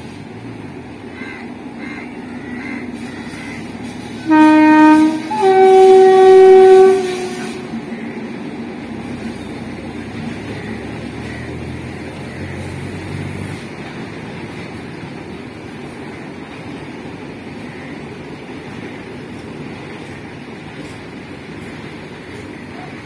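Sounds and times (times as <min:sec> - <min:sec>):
train rumbling over the line: 0:00.0 - 0:23.0
train horn blasts: 0:04.1 - 0:08.0.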